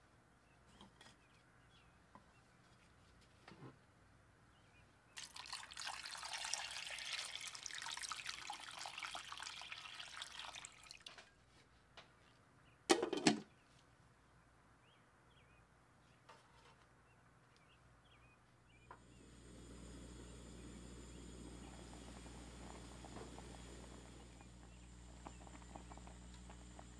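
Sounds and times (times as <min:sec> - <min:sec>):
water pouring into a pot: 0:05.2 - 0:11.2, 0:19.2 - 0:26.9
low steady rumble: 0:19.0 - 0:26.9.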